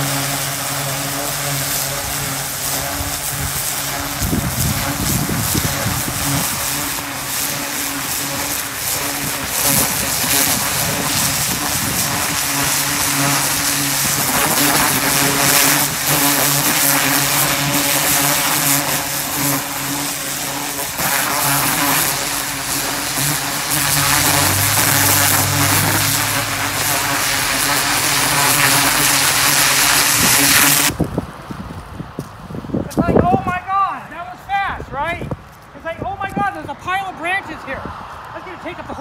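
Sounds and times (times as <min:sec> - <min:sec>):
pressure washer jet hissing: 0:00.0 - 0:30.9.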